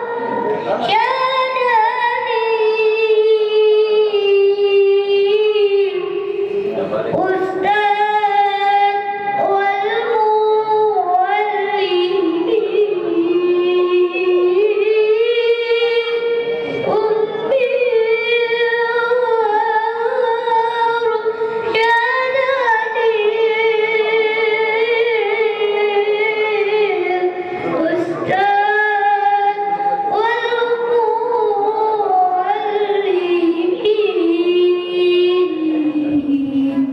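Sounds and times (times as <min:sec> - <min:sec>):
person singing unaccompanied: 0:07.1 - 0:36.9.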